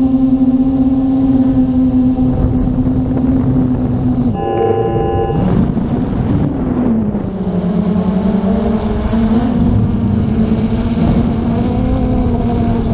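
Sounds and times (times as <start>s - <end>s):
drone propellers humming: 0.0s - 12.9s
wind rushing: 2.4s - 7.3s.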